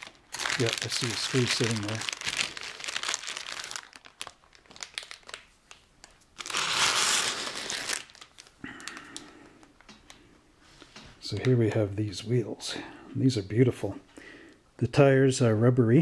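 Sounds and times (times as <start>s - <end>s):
plastic bag crinkling: 0.0s - 10.3s
soft rustles and small clicks: 4.5s - 6.4s, 8.2s - 11.8s.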